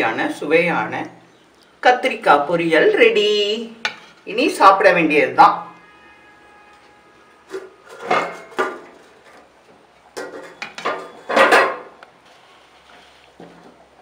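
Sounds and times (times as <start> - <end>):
kitchen utensils clattering: 7.5 - 9.5, 10.2 - 12.0.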